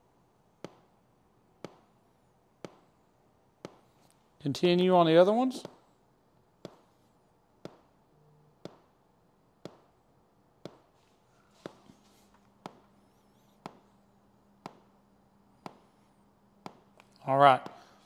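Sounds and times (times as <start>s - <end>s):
sharp pops from speakers: 1.6s - 1.9s, 2.6s - 2.9s, 8.6s - 9.0s, 9.6s - 10.0s.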